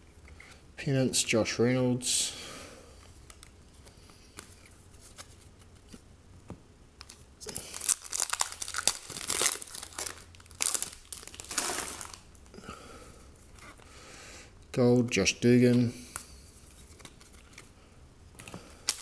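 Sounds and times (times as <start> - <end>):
cards being handled: 3.0 - 6.0, 15.7 - 17.7
foil wrapper crinkling and tearing: 7.0 - 12.4.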